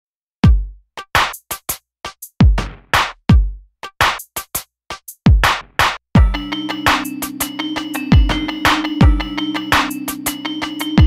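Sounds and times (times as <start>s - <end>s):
deep kick drums: 0.4s - 0.8s, 2.4s - 3.6s, 5.3s - 6.5s, 8.1s - 8.4s, 9.0s - 9.3s
clap or snare hits: 2.6s - 3.2s, 5.4s - 6.0s.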